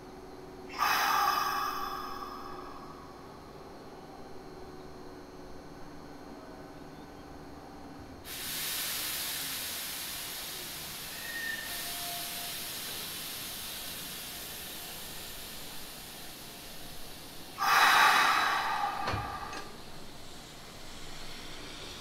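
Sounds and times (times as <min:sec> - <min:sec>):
compressed air hissing: 0:00.7 - 0:03.2, 0:08.3 - 0:22.0.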